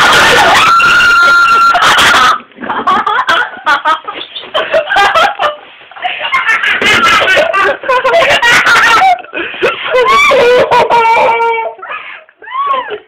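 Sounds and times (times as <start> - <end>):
loud high scream: 0.0 - 2.3.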